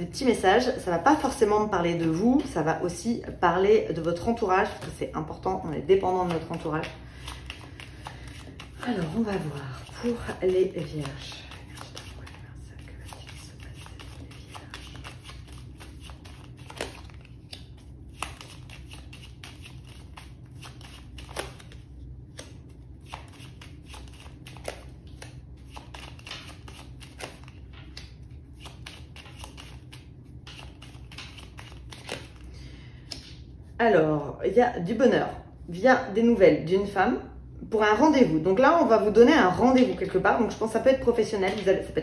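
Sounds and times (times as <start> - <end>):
playing cards shuffling: 1.2 - 2.6, 5.6 - 33.4
cards dealt onto cloth mat: 10.4 - 32.4.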